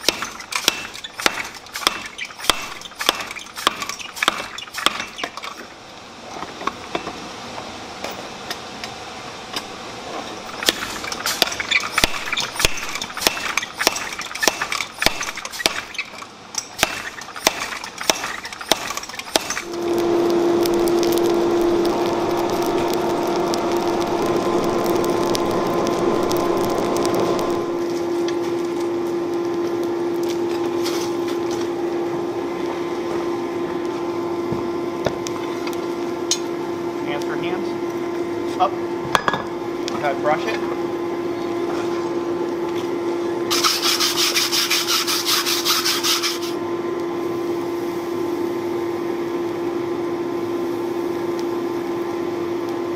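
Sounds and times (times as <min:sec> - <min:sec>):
forge blower humming: 0:05.7 - 0:52.9
rush of air: 0:19.5 - 0:28.3
metal knocks on anvil: 0:39.2 - 0:39.5.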